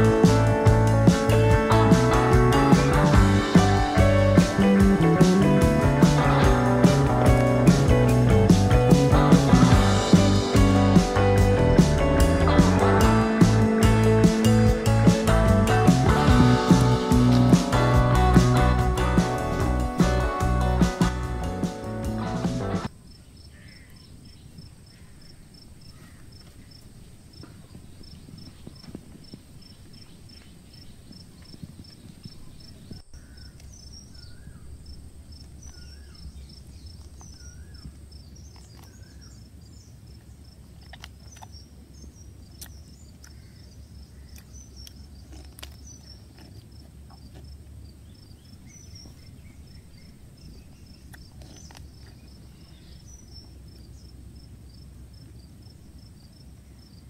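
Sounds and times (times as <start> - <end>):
low outdoor rumble: 0.0 - 23.0
insects chirping: 22.8 - 57.0.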